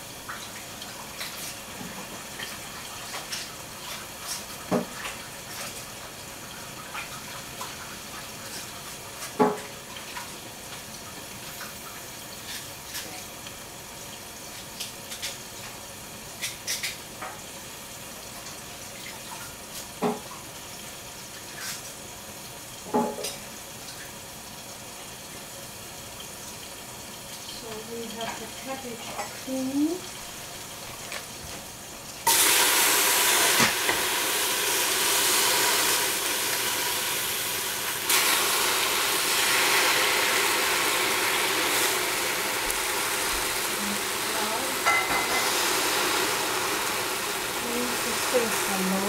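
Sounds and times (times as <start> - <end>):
tap water running into sink: 0.0 - 15.8, 18.4 - 20.6, 31.0 - 49.0.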